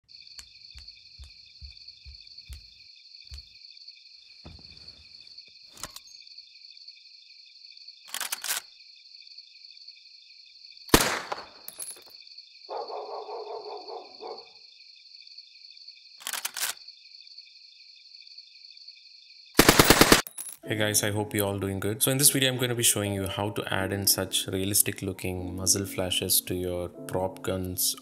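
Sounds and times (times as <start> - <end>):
soft low thuds: 0.7 - 3.5, 4.4 - 5.2
sharp crack: 10.9 - 11.7.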